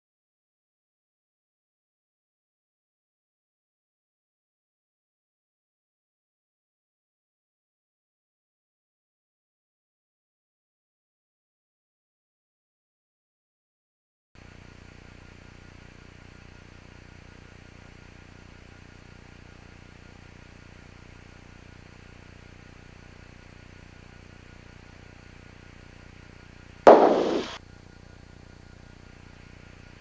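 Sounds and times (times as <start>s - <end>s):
intercom hiss and hum: 26.9s - 27.6s
loud burst of noise: 26.9s - 27.6s.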